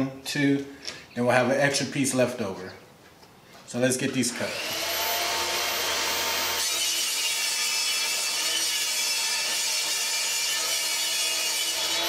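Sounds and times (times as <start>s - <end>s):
table saw cutting plywood: 4.3s - 12.0s.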